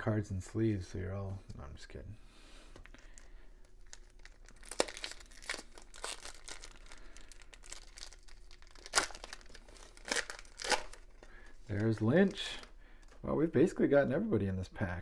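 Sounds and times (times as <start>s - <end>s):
foil wrapper crinkling and tearing: 2.9s - 13.1s.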